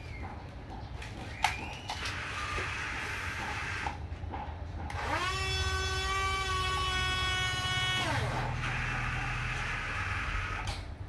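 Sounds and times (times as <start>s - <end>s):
toy electric drive whirring: 1.8s - 4.0s, 4.9s - 10.9s.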